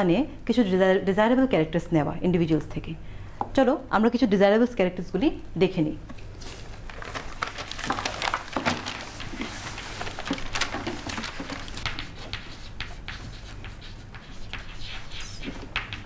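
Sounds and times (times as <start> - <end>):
chalk tapping and scratching: 11.8 - 16.0.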